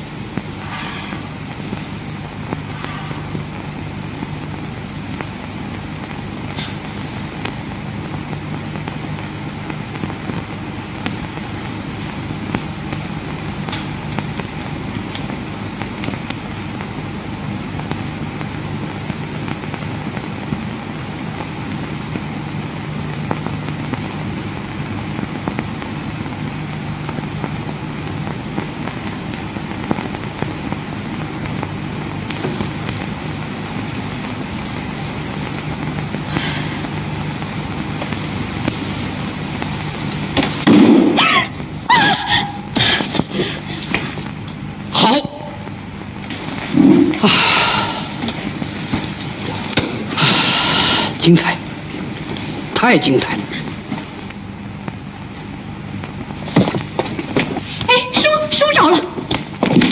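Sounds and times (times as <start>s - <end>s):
film soundtrack hiss and hum: 0.0s - 59.9s.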